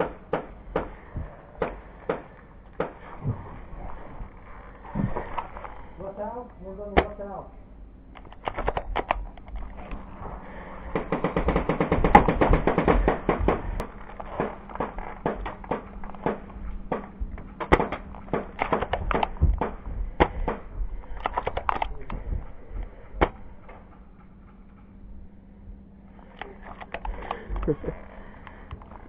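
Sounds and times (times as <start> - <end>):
airsoft gunfire: 10.9 - 20.6.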